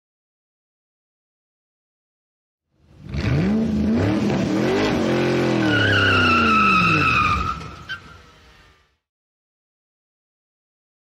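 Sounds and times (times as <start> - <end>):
car engine revving: 2.9 - 8.6
tyres squealing: 5.4 - 8.3.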